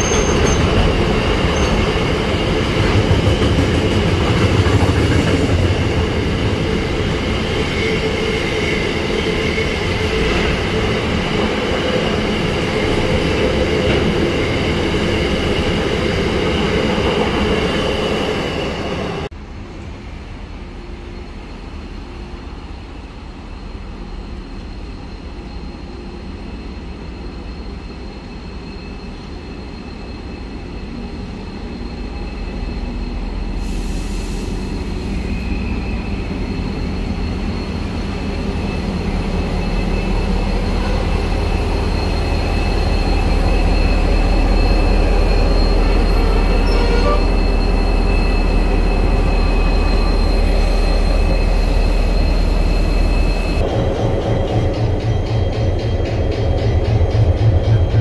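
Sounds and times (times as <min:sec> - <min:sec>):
train wheel squeal: 0:00.0 - 0:19.3, 0:20.4 - 0:58.0
diesel locomotive engine rumble: 0:30.2 - 0:58.0.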